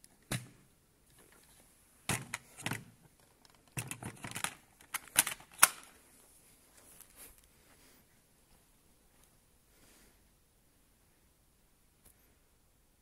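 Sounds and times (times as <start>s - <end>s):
hard plastic clicks and clunks: 2.1s - 5.9s.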